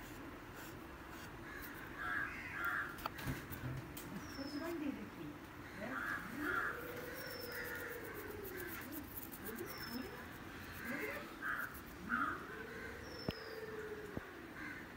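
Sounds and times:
crows cawing: 0:01.4 - 0:03.2, 0:05.6 - 0:09.3, 0:10.5 - 0:14.9
small birds chirping: 0:01.4 - 0:14.2.

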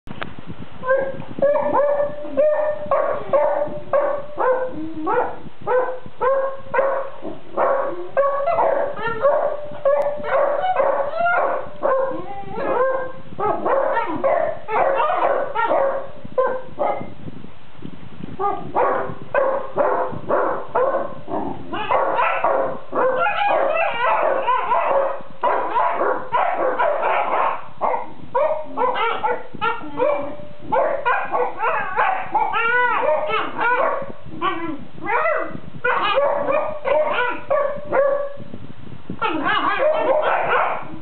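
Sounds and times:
dogs whimpering and woofing: 0:21.3 - 0:27.6, 0:28.4 - 0:37.6, 0:39.2 - 0:40.9.

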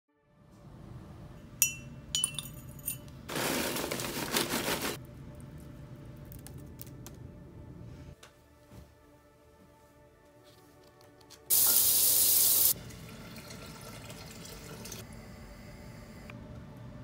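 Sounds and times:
glass clinking: 0:01.6 - 0:03.1
soft background music: 0:05.0 - 0:14.0.

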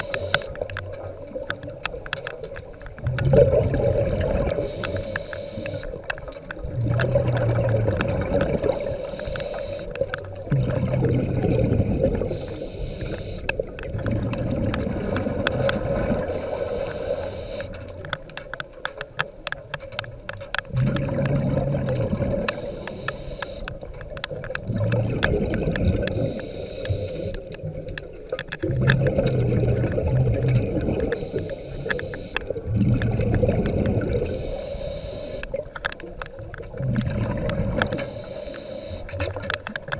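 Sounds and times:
regulator inhale hiss: 0:00.0 - 0:00.5, 0:04.6 - 0:05.9, 0:08.8 - 0:09.9, 0:12.3 - 0:13.5, 0:16.3 - 0:17.8, 0:22.5 - 0:23.7, 0:26.1 - 0:27.5, 0:31.2 - 0:32.4, 0:34.2 - 0:35.5, 0:37.9 - 0:39.1
exhaled bubbles rumbling: 0:00.0 - 0:34.6, 0:35.4 - 0:39.9.

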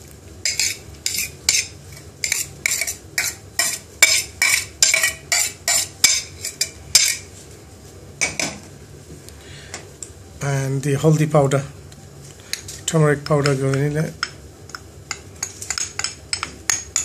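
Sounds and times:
metal spoon scraping metal dish: 0:00.5 - 0:07.2.

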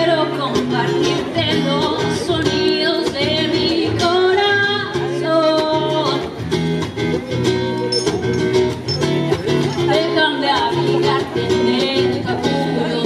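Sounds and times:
woman singing into a microphone: 0:00.0 - 0:06.4, 0:09.8 - 0:13.0
acoustic guitar: 0:00.0 - 0:13.0.

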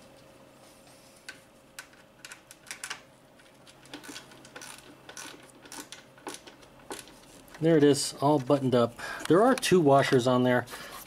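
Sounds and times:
hand ratchet clicking: 0:03.9 - 0:07.1.

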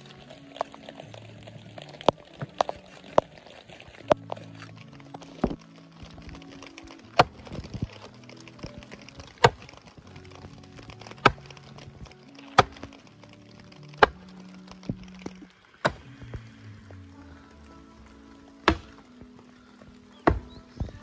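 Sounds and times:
background music: 0:00.0 - 0:21.0
axe chopping wood: 0:15.8 - 0:16.1, 0:18.6 - 0:19.0, 0:20.3 - 0:20.6.

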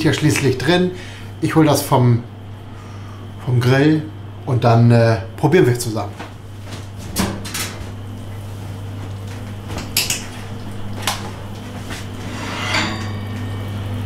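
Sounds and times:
steady low hum: 0:00.0 - 0:14.0
metal pan scraping on grill grate: 0:12.2 - 0:13.6.

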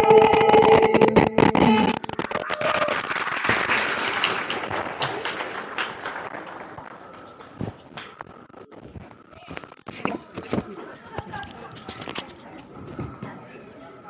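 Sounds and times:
group singing: 0:00.0 - 0:01.8
audience applauding: 0:01.9 - 0:08.7.

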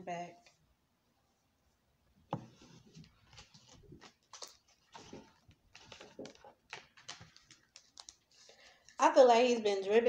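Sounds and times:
cards being shuffled: 0:02.5 - 0:08.5.

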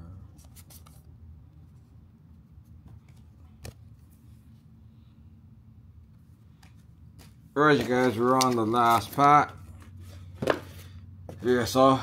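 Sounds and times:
low room hum: 0:00.0 - 0:12.0
trading cards handling: 0:00.3 - 0:01.8, 0:06.4 - 0:11.4.

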